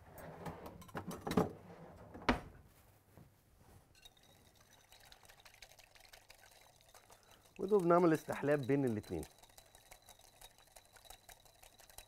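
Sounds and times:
whisk clinking against glass bowl: 0:04.0 - 0:12.0.

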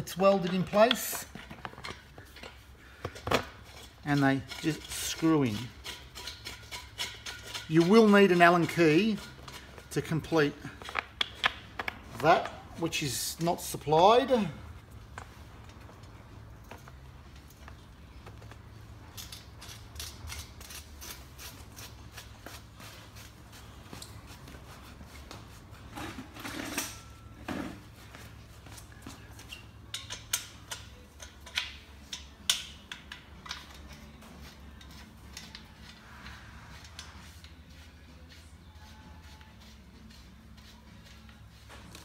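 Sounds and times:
metal bolts clicking and clinking: 0:00.0 - 0:10.2, 0:19.0 - 0:20.8, 0:29.4 - 0:36.0.

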